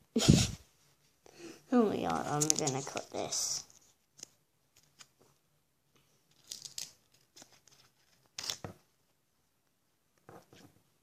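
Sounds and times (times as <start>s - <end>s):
scissors snipping packaging: 2.4s - 3.0s.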